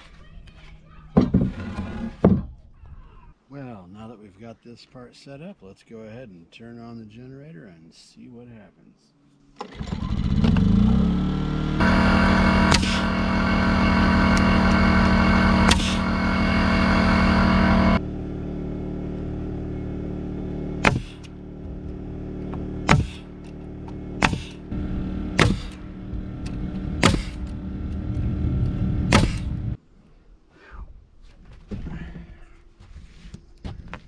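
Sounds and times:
generator humming: 0:09.6 - 0:29.8
nail gun shots: 0:20.8 - 0:21.3, 0:22.9 - 0:23.3, 0:25.4 - 0:25.8, 0:27.0 - 0:27.4, 0:29.1 - 0:29.5.

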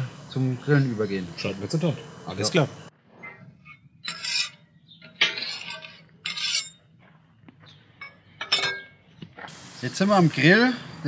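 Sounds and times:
scraping clattering noises: 0:02.9 - 0:09.6.

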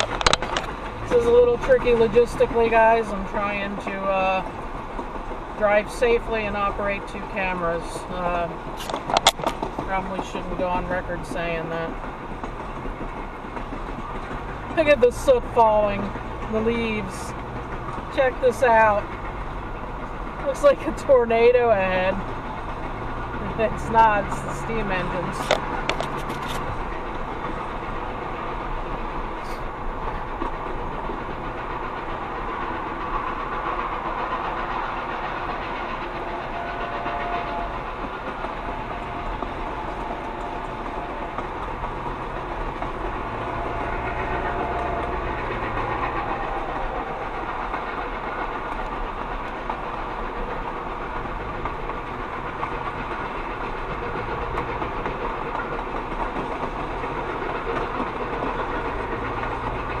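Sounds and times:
car driving at speed: 0:00.0 - 0:07.9, 0:37.7 - 0:55.3
steam train running: 0:00.0 - 1:00.0.

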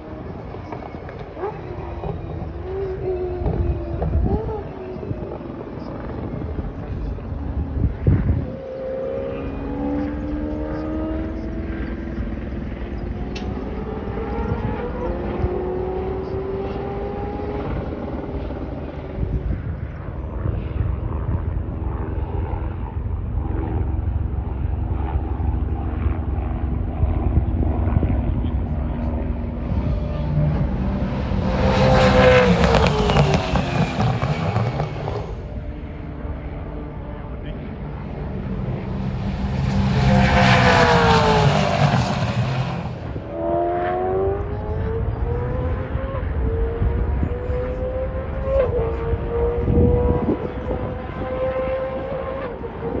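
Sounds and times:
distant engine rumble: 0:00.0 - 0:53.0
faint held drone: 0:00.0 - 0:53.0
race car passing by: 0:26.7 - 0:53.0.

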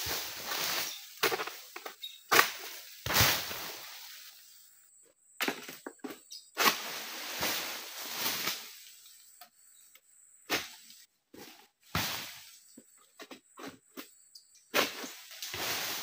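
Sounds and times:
palm fronds rustling and thudding: 0:00.0 - 0:04.4, 0:05.4 - 0:09.1, 0:10.5 - 0:12.7, 0:14.7 - 0:16.0.

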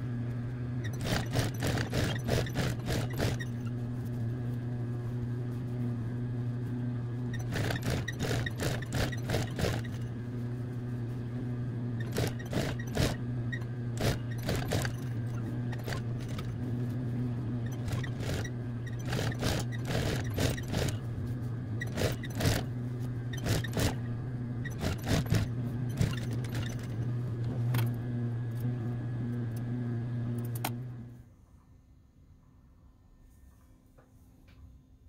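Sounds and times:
sewing machine motor hum: 0:00.0 - 0:31.2
sewing machine clicks: 0:00.9 - 0:03.6, 0:07.4 - 0:10.0, 0:12.0 - 0:13.2, 0:14.0 - 0:16.5, 0:17.7 - 0:21.0, 0:21.8 - 0:22.7, 0:23.4 - 0:24.0, 0:24.7 - 0:27.0.

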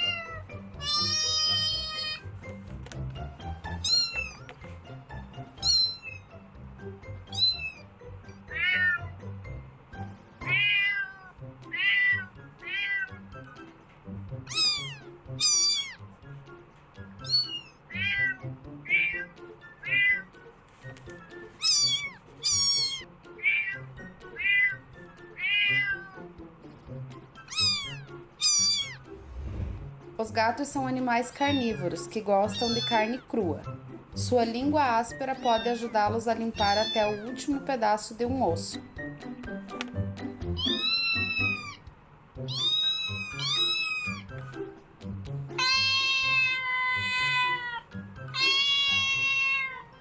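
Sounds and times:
kitten meowing: 0:00.0 - 0:02.3, 0:03.6 - 0:04.5, 0:05.6 - 0:06.3, 0:07.3 - 0:07.9, 0:08.5 - 0:09.2, 0:10.4 - 0:13.2, 0:14.4 - 0:16.0, 0:17.2 - 0:20.3, 0:21.6 - 0:24.8, 0:25.4 - 0:26.3, 0:27.4 - 0:29.1, 0:32.5 - 0:33.2, 0:36.6 - 0:37.3, 0:40.6 - 0:44.3, 0:45.5 - 0:50.0
background music: 0:00.0 - 0:50.0.

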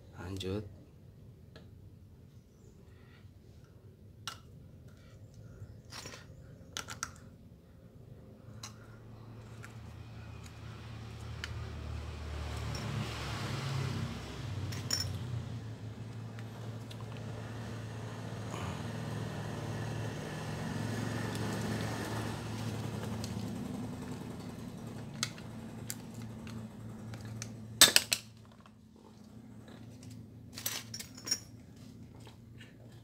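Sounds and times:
metal parts clinking on bench: 0:14.7 - 0:15.2, 0:30.5 - 0:31.6
steady low hum: 0:14.7 - 0:33.0.

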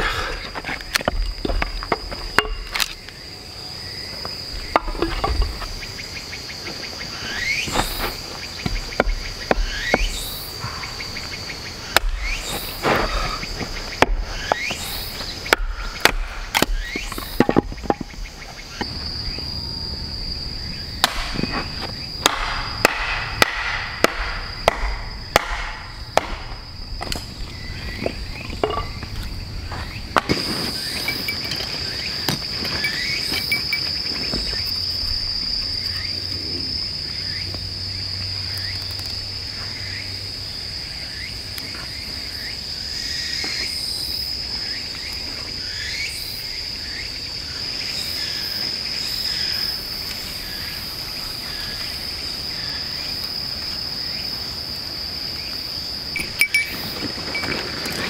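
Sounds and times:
insect drone: 0:00.0 - 0:58.0
wood being chopped: 0:00.9 - 0:03.0, 0:04.7 - 0:05.7, 0:07.7 - 0:10.2, 0:11.9 - 0:18.9, 0:21.0 - 0:27.3.

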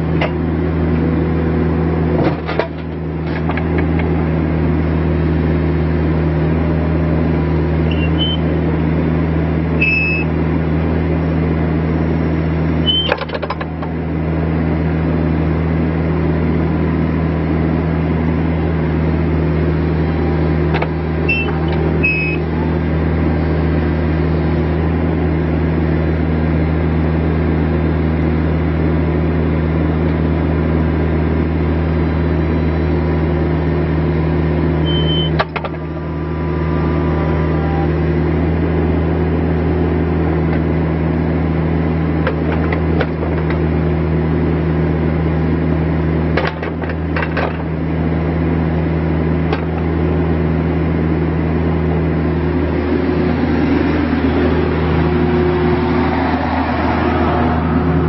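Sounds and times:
excavator diesel engine running: 0:00.0 - 0:58.0
excavator clunk: 0:00.1 - 0:00.5, 0:02.0 - 0:04.2, 0:12.9 - 0:14.0, 0:20.6 - 0:22.5, 0:34.8 - 0:36.1, 0:42.2 - 0:43.8, 0:46.2 - 0:47.8, 0:49.4 - 0:50.0
short high squeaks: 0:07.9 - 0:08.4, 0:09.8 - 0:10.3, 0:12.8 - 0:13.2, 0:21.3 - 0:22.5, 0:34.8 - 0:35.4.

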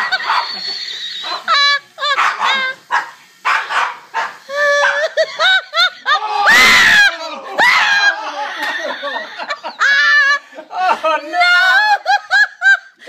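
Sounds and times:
dogs yipping and barking: 0:00.0 - 0:05.9.

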